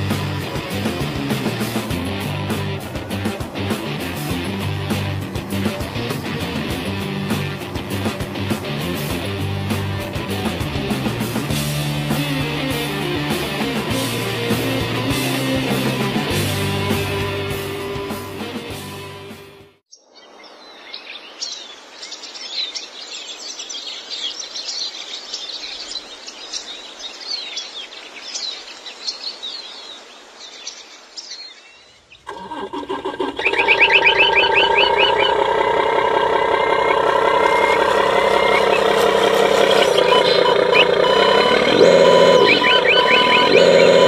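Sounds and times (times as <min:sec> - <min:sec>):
birds chirping: 0:19.9 - 0:44.0
dense steady tones: 0:33.8 - 0:44.0
quick chirping sounds: 0:36.7 - 0:44.0.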